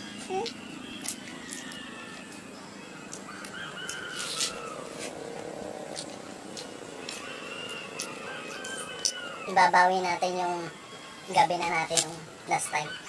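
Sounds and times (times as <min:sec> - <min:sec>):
people chewing food: 0:00.0 - 0:09.6
distant drawn-out animal calls: 0:00.0 - 0:13.0.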